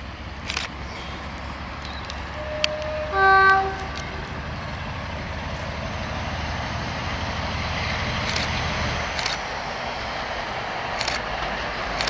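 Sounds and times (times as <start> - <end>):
locomotive engine droning: 0.0 - 12.0
locomotive horn blast: 1.0 - 6.2.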